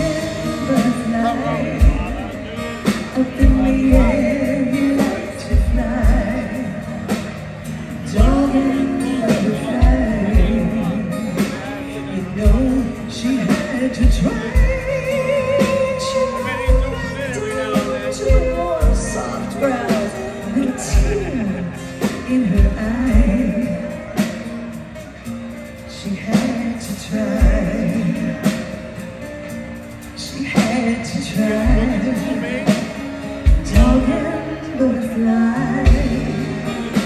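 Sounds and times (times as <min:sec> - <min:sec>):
rock band playing ballad: 0:00.0 - 0:37.0.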